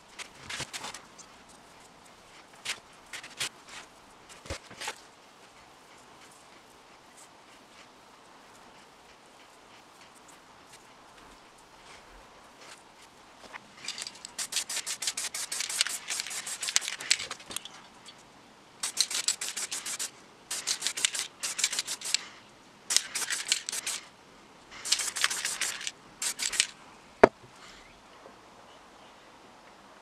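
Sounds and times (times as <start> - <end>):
spray paint can hissing: 13.9 - 17.6, 18.8 - 22.3, 22.9 - 24.1, 24.7 - 26.7.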